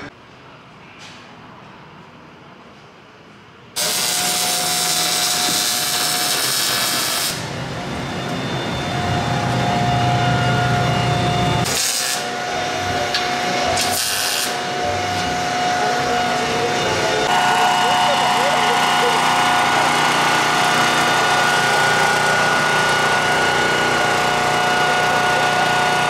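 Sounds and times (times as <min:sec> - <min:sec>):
power tool cutting steel: 0:03.8 - 0:07.5, 0:11.2 - 0:26.0.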